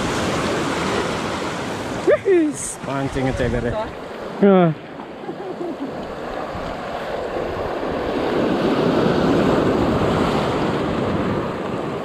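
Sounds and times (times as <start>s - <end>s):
sea waves washing over rocks: 0.0s - 12.0s
wind on the microphone: 2.0s - 4.0s, 5.9s - 12.0s.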